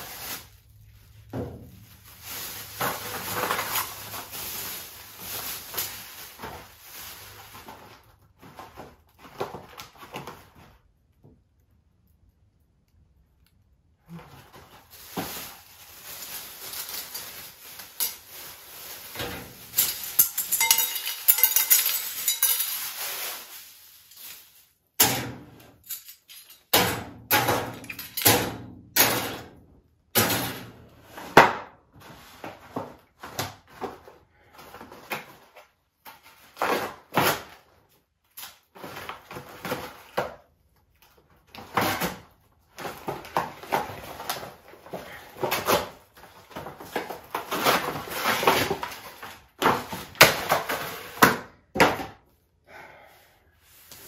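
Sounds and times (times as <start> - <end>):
plastic bag crinkling: 0.0 - 10.5, 14.2 - 24.9.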